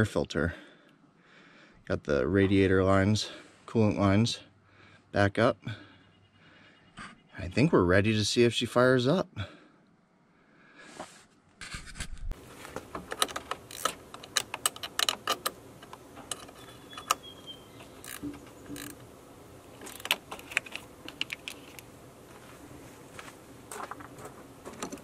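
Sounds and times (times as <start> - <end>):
socket ratchet clicking: 13.0 - 19.0.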